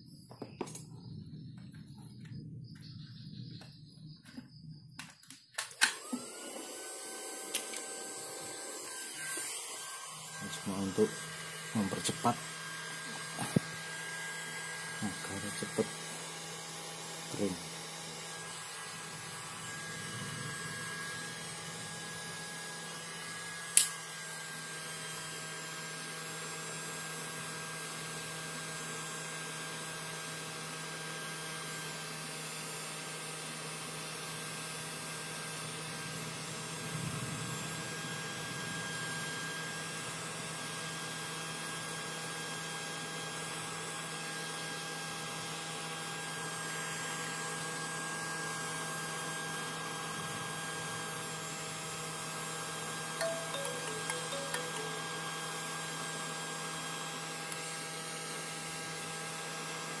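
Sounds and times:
sharp click: 5.0s - 6.1s, 23.8s - 24.0s
hot air blower humming: 5.6s - 27.0s.

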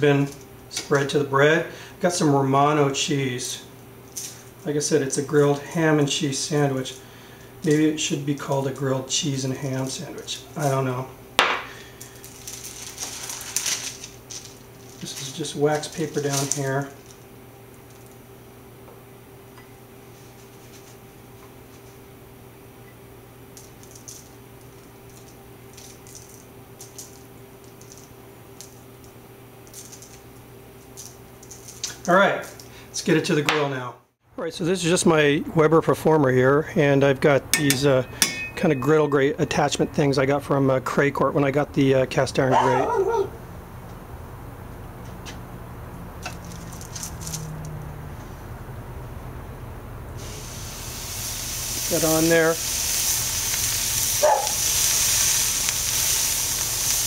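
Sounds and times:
sandwich sizzling on griddle: 11.7s - 14.5s, 50.2s - 57.0s
grated cheese rustling ticks: 51.9s - 57.0s.

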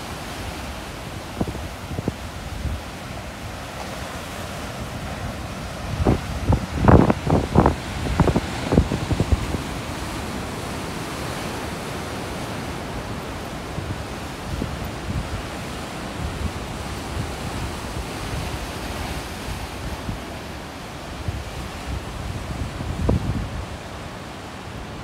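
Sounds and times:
surf breaking on rocks: 0.0s - 20.2s
wind thumps on microphone: 5.9s - 9.7s.

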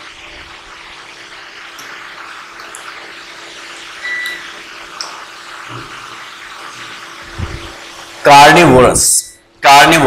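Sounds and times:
high beep: 4.0s - 4.4s.

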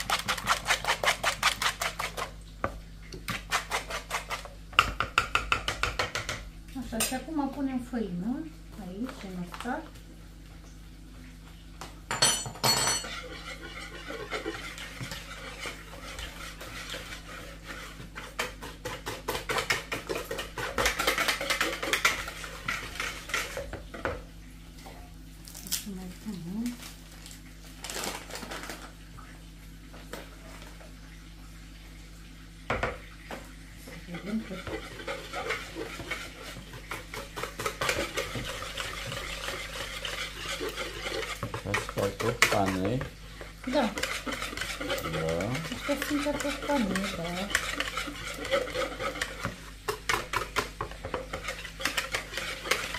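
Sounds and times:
whisk beating batter in bowl: 0.0s - 6.4s, 12.9s - 24.2s, 33.8s - 52.9s.

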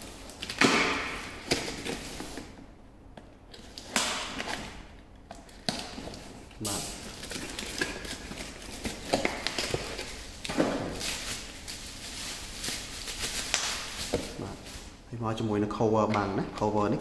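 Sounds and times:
bubble wrap crinkling: 3.5s - 15.0s
cardboard rustling: 5.4s - 15.0s.

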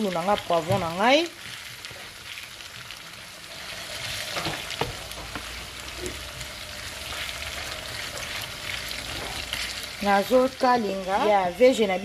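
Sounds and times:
vegetables sizzling in a frying pan: 0.0s - 12.0s
spatula scraping a pan: 3.5s - 10.4s.

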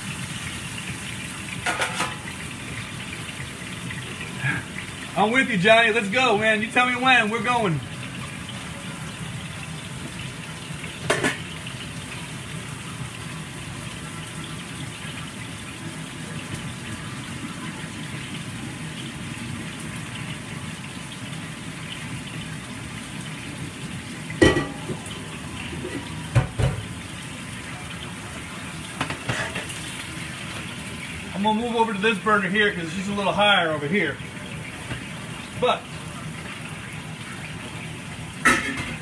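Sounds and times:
food sizzling in a pan: 0.0s - 39.0s
cookware knocking: 24.4s - 25.0s.

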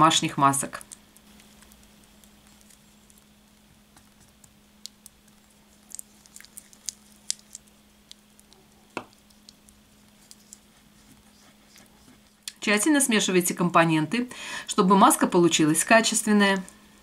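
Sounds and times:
faint low hum: 0.0s - 17.0s
paste squishing: 0.8s - 12.5s.

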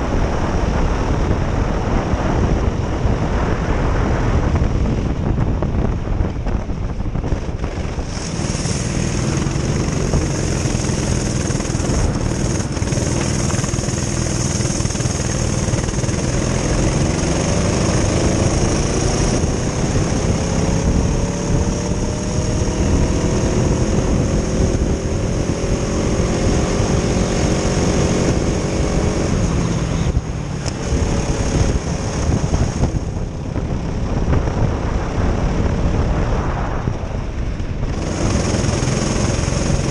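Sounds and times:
wind buffeting microphone: 0.0s - 39.9s
kart engines revving: 7.6s - 34.2s, 37.5s - 39.9s.

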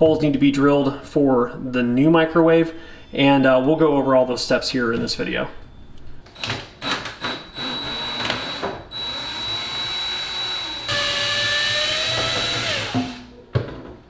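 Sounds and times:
impact driver motor whine: 6.4s - 13.3s.

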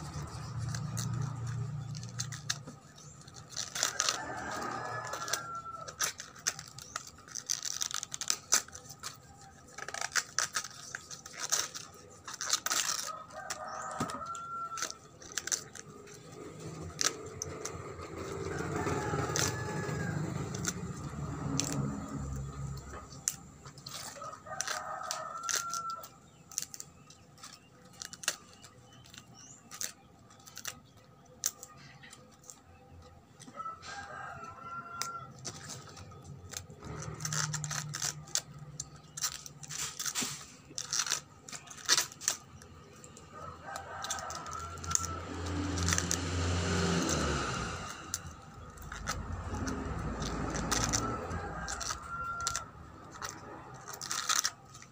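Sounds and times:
rooster crowing: 3.8s - 6.6s, 12.7s - 15.6s, 18.2s - 22.9s, 23.9s - 26.2s, 33.4s - 35.7s, 43.2s - 54.2s.

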